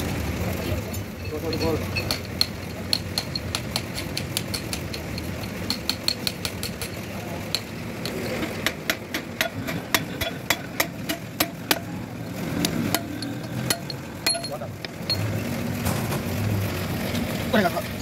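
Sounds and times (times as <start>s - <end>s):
metallic clinks of hand tools: 1.2s - 8.4s, 13.0s - 15.3s
hammer striking metal: 1.2s - 12.0s, 12.7s - 15.2s.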